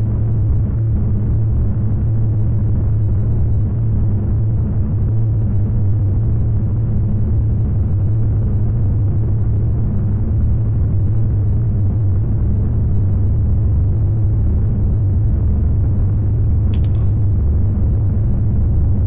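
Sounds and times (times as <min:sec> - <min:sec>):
deep hum: 0:15.8 - 0:19.0
low rumble: 0:15.8 - 0:19.0.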